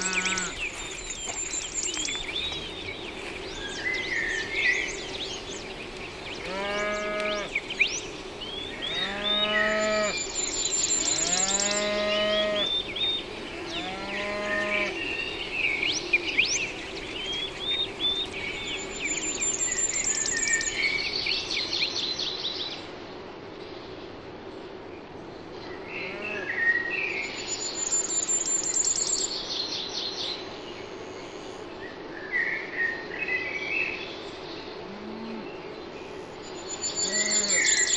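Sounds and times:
cow mooing: 0.0s - 0.6s, 6.4s - 7.5s
small birds chirping: 0.0s - 22.8s, 33.3s - 37.9s.

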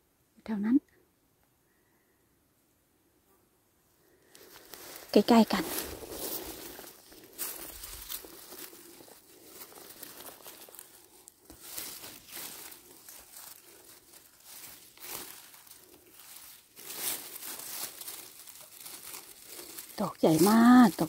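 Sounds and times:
footsteps rustling through vegetation: 4.2s - 21.0s.

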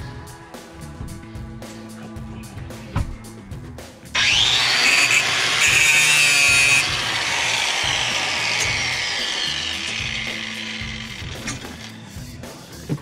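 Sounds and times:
angle grinder grinding metal: 4.2s - 12.2s.

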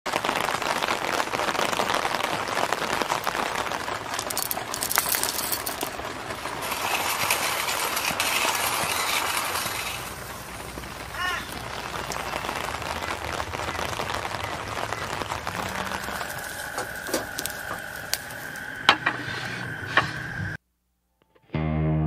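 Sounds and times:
steady crackling patter: 0.1s - 20.6s
coffee beans clinking and rattling: 4.1s - 10.6s, 16.0s - 19.1s.

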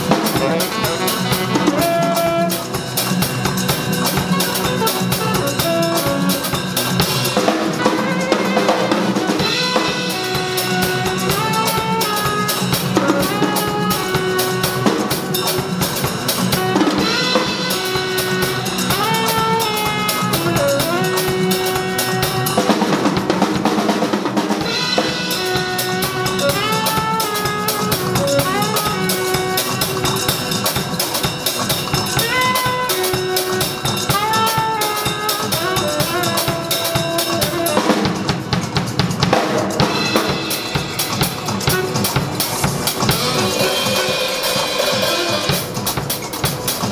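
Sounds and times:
saxophone melody: 0.0s - 23.4s, 24.6s - 38.5s, 40.2s - 46.0s
jazz drumming: 0.0s - 46.9s.

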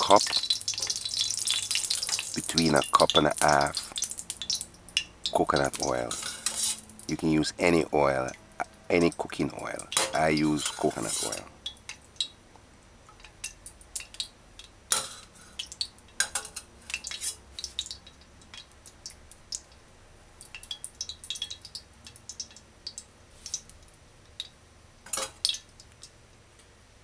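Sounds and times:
metal ladle clinking on skillet: 6.1s - 6.8s, 9.9s - 11.4s, 16.1s - 17.4s.

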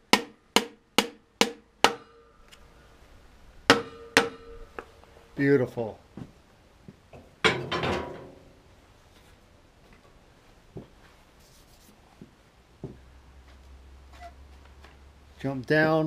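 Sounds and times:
ringing metal clank: 3.7s - 4.8s.

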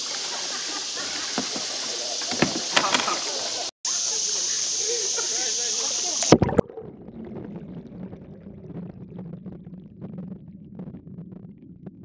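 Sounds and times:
underwater low hum: 0.0s - 12.0s
faint underwater crackling and clicks: 6.0s - 12.0s.

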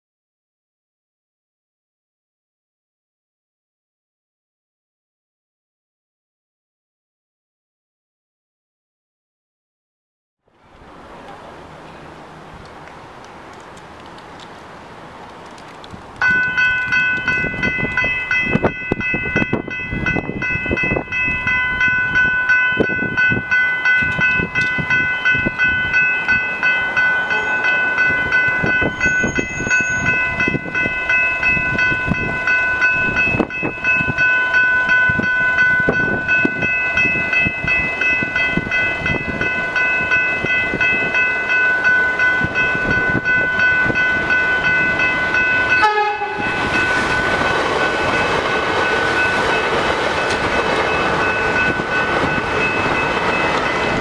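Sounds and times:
electric train passing: 10.5s - 54.0s
level crossing bells ringing: 16.2s - 54.0s.

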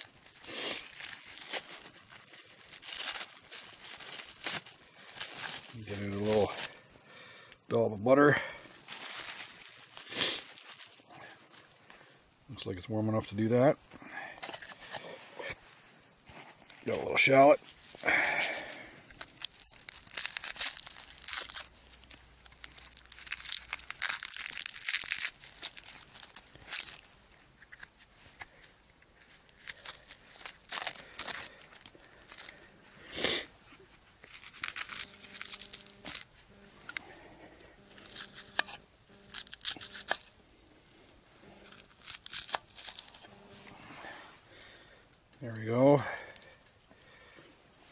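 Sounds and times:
papery skin tearing and crinkling: 0.0s - 6.9s, 8.7s - 11.9s, 14.4s - 16.9s, 17.6s - 47.9s.

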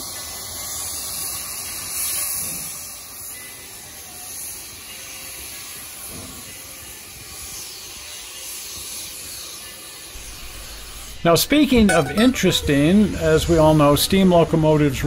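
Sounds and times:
steam hissing from locomotives: 0.0s - 11.2s.

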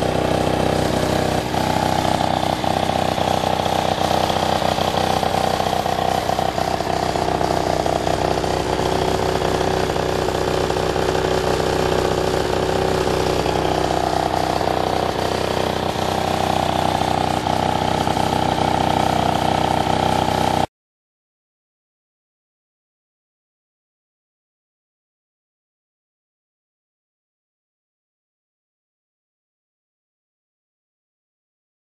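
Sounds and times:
scooter engine idling: 0.0s - 20.7s.

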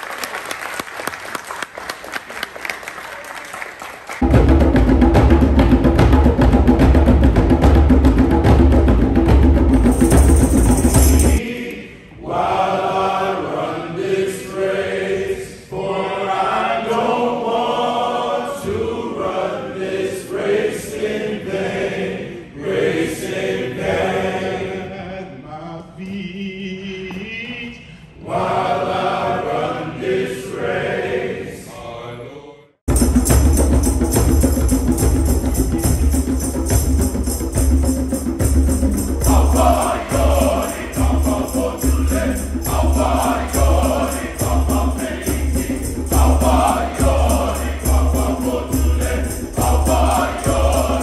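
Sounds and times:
men's choir singing: 9.9s - 32.7s, 34.6s - 51.0s.

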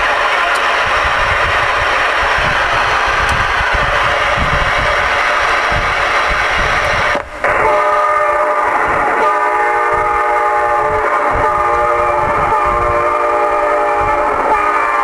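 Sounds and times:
horn-like chord from radio speaker: 7.4s - 15.0s.

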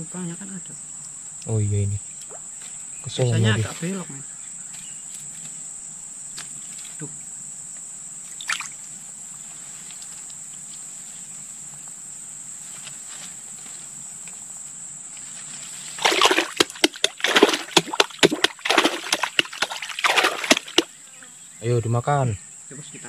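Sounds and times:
high insect drone: 0.0s - 23.0s
creek water splashing: 2.1s - 2.8s, 8.2s - 9.0s, 15.8s - 21.0s.

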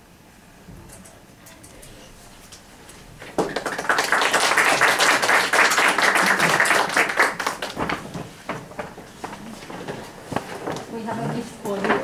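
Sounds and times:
audience applauding: 3.3s - 8.1s.

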